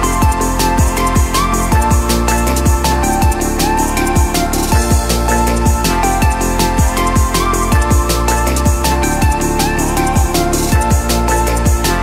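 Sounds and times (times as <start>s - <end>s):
crisp hi-hats: 0.0s - 12.0s
deep kick drums: 0.0s - 12.0s.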